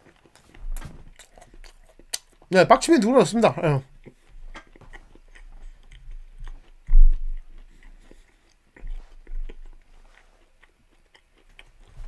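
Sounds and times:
man chewing food: 0:00.0 - 0:02.5, 0:03.1 - 0:12.0
dull low bump: 0:06.8 - 0:07.4.

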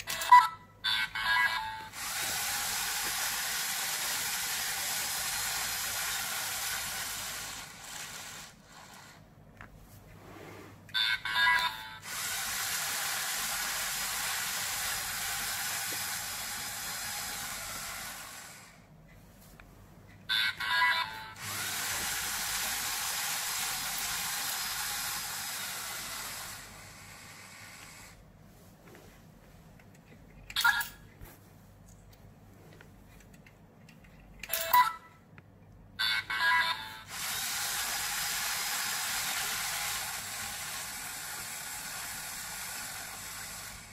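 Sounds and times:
motor whir: 0:01.9 - 0:09.2, 0:12.0 - 0:18.8, 0:21.4 - 0:28.2, 0:37.1 - 0:43.9.

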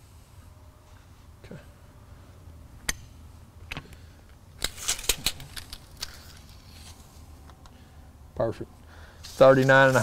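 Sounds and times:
tape measure clicks and clatters: 0:04.6 - 0:07.0.

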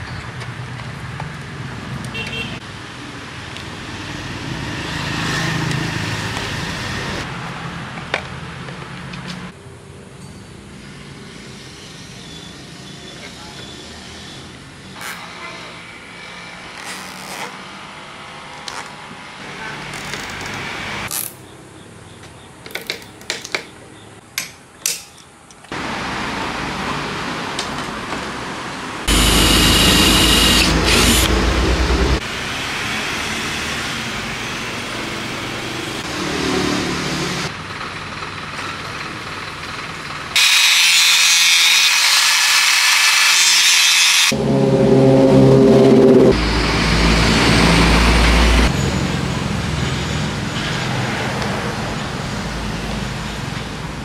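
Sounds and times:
electric drill boring into plastic: 0:29.1 - 0:31.3, 0:40.4 - 0:44.3
angle grinder cutting metal: 0:29.1 - 0:31.8, 0:40.4 - 0:46.3.

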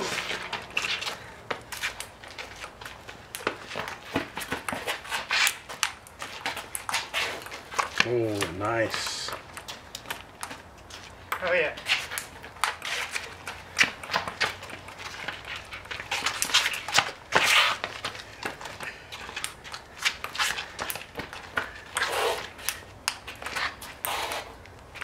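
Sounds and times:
scuffing noises: 0:00.0 - 0:25.0.

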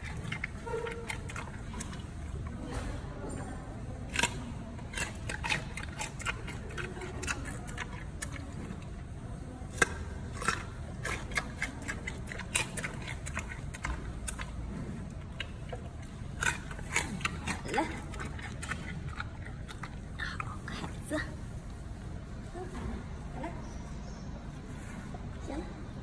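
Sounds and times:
panda crunching carrot: 0:00.0 - 0:02.9, 0:04.0 - 0:21.1.

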